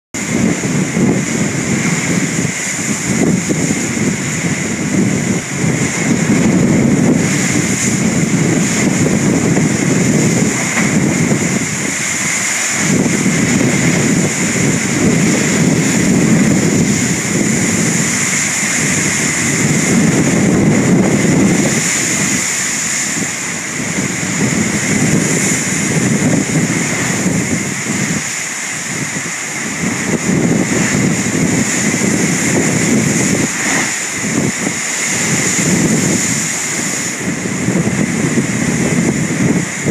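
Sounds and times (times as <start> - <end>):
wind rumbling on microphone: 0.1 - 39.9
surf breaking against rocks: 0.2 - 39.9
hiss of spray and foam: 7.2 - 38.7.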